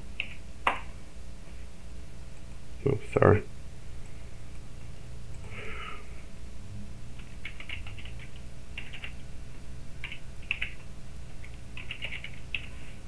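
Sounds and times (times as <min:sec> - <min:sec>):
low steady hum: 0:00.0 - 0:13.0
keyboard typing: 0:07.2 - 0:09.3, 0:10.0 - 0:13.0.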